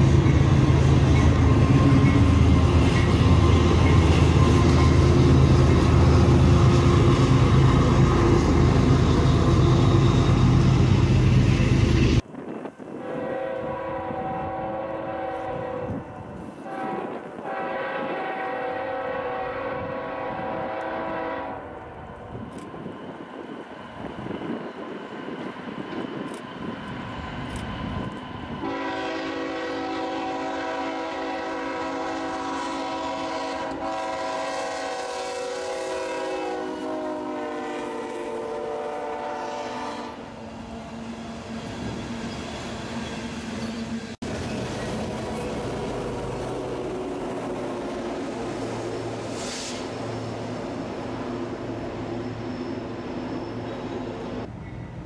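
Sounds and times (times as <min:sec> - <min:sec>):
locomotive air horn blasts: 0:13.0 - 0:21.8, 0:28.6 - 0:40.3.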